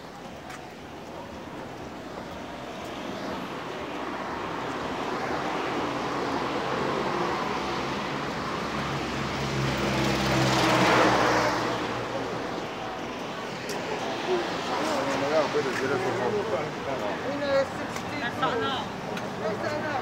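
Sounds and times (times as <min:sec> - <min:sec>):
vehicle passing by: 0:04.2 - 0:16.8.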